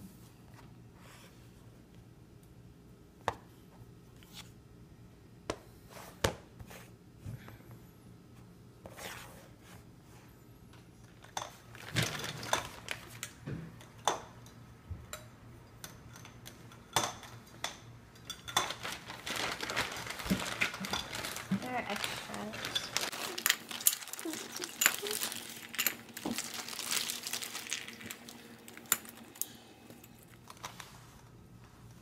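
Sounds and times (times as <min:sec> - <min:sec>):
plastic bag rustling: 0:11.6 - 0:13.4, 0:18.5 - 0:31.4.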